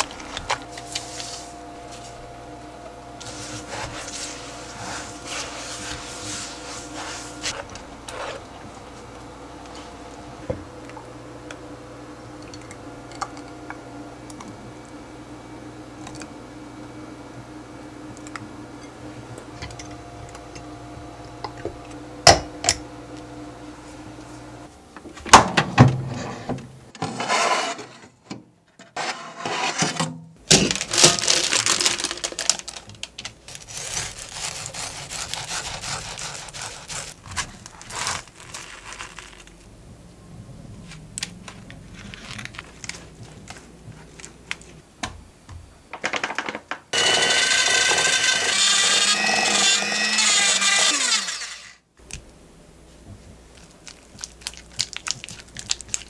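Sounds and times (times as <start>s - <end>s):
electric hand mixer running: 47.0s - 51.8s.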